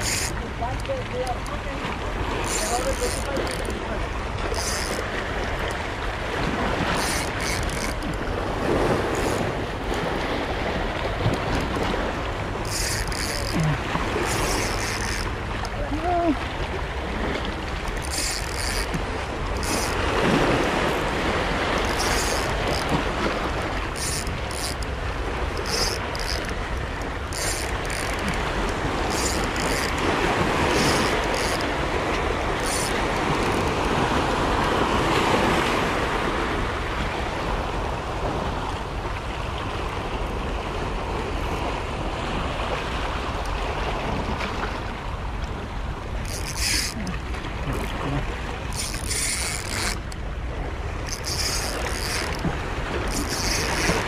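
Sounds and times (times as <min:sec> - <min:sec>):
small waves breaking over rocks: 0:00.0 - 0:54.0.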